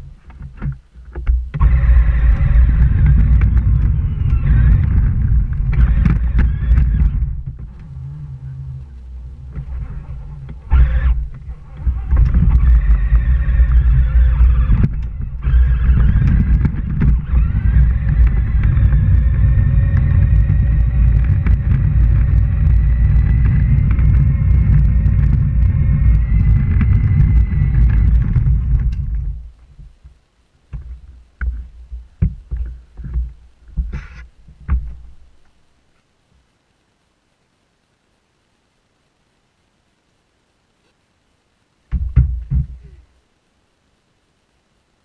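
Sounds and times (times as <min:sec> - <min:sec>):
toy tractor rumbling: 0:00.0 - 0:29.6
faint drive whine: 0:00.0 - 0:45.0
knocks on plastic: 0:41.9 - 0:42.8.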